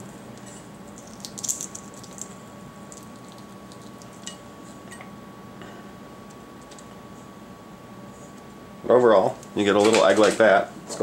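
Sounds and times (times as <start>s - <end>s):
eggshell crackling as peeled: 0.9s - 4.3s.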